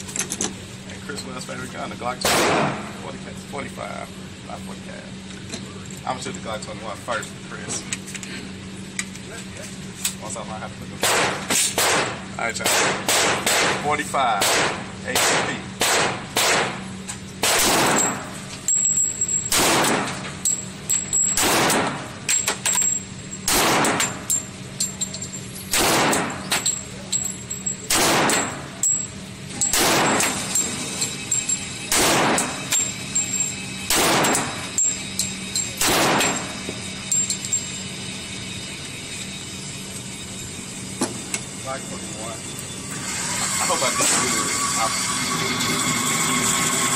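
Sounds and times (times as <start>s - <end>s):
pistol shots echoing indoors: 2.2s - 2.8s, 11.0s - 13.8s, 14.4s - 16.8s, 17.4s - 18.2s, 19.5s - 20.2s, 21.4s - 22.0s, 23.5s - 24.1s, 25.7s - 26.4s, 27.9s - 28.6s, 29.7s - 30.4s, 31.9s - 32.6s, 33.9s - 34.6s, 35.8s - 36.5s.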